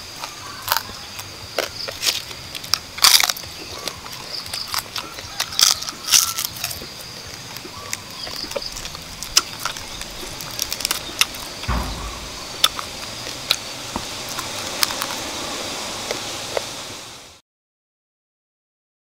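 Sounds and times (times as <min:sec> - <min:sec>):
person chewing and crunching: 0:00.2 - 0:09.8
meat tearing by hand: 0:01.6 - 0:07.0
background hiss: 0:06.9 - 0:17.4
dull thump: 0:11.7 - 0:13.3.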